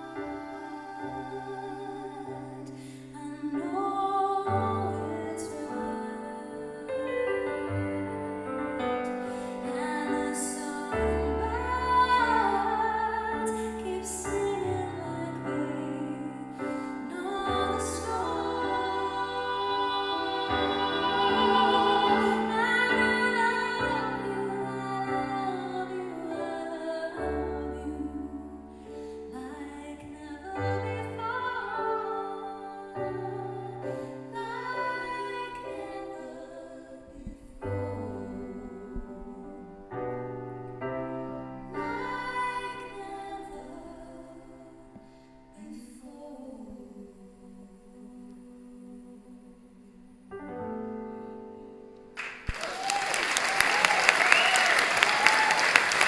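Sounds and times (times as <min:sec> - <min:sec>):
woman singing a ballad: 0:00.0 - 0:40.1, 0:41.6 - 0:51.0
piano chords: 0:00.0 - 0:46.0
audience applause: 0:52.2 - 0:56.0.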